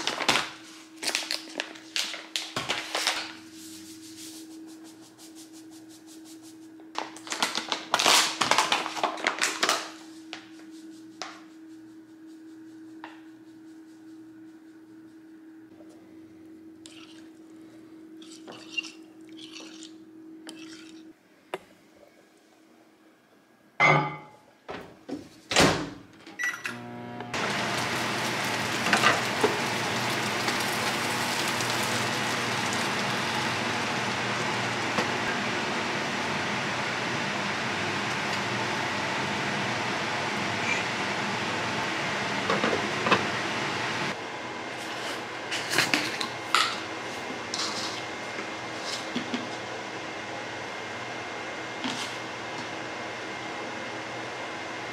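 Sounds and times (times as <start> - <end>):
microwave beep: 26.3 - 27.0
food sizzling in frying pan: 27.4 - 36.6.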